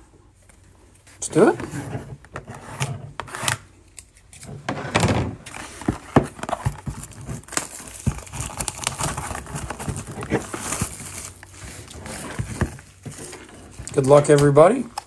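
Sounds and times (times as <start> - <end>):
plastic wrap tearing and crinkling: 5.4 - 15.0.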